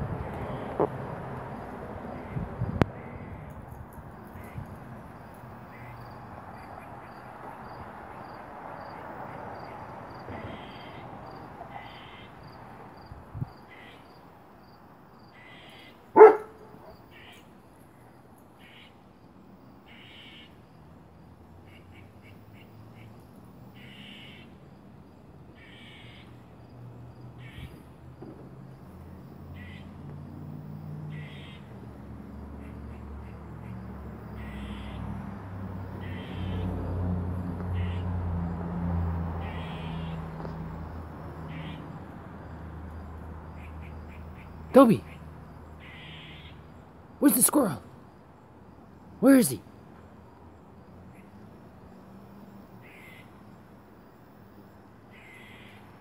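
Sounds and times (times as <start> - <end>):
dog barking: 16.2 - 17.0.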